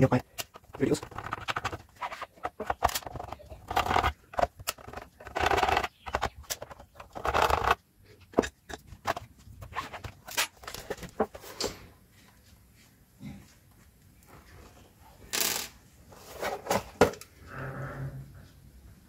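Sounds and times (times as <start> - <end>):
plastic handling clicks and knocks: 0.1 - 11.8.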